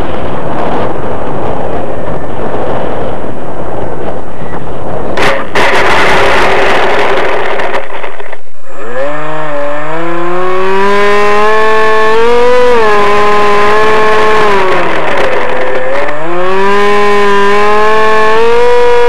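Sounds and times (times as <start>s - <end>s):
model airplane motor whine: 4.3s - 19.0s
loud rushing noise: 5.1s - 8.3s.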